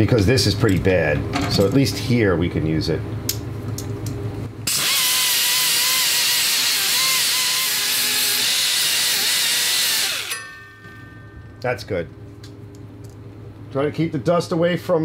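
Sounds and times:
low steady hum: 0:00.0 - 0:04.9, 0:09.6 - 0:15.0
rotary tool grinding metal: 0:04.7 - 0:10.5.

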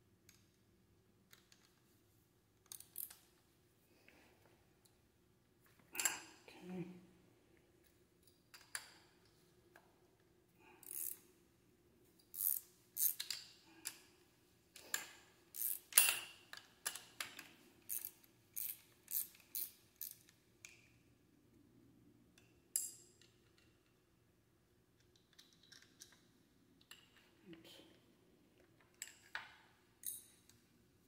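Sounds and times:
metal tools clicking and clinking: 0:06.0 - 0:06.4, 0:14.8 - 0:20.3, 0:28.7 - 0:30.6.

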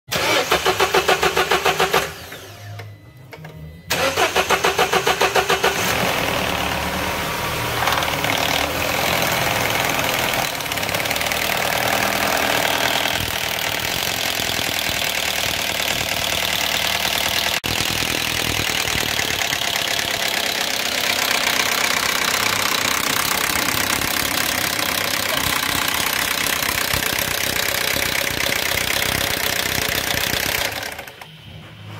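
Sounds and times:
starter cranking engine: 0:00.1 - 0:02.6, 0:03.9 - 0:07.0, 0:07.8 - 0:31.3
engine running with chain rattle: 0:07.8 - 0:31.9.

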